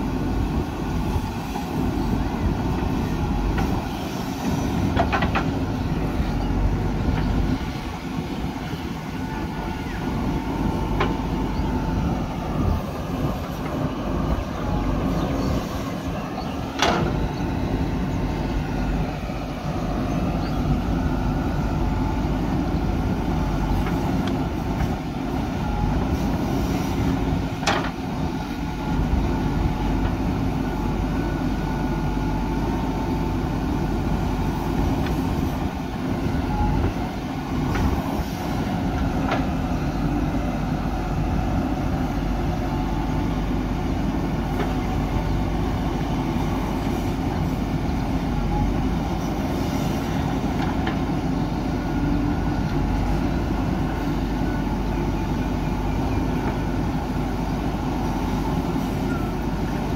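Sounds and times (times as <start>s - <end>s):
diesel engine running under load: 0.0s - 59.9s
hydraulic arm digging soil: 0.9s - 59.9s.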